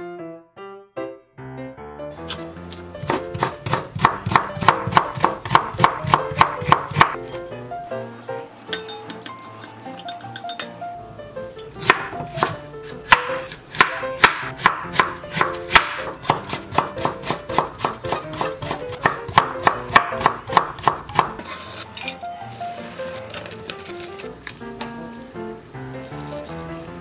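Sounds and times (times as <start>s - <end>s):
knife chopping on cutting board: 2.3s - 7.2s, 11.8s - 21.6s.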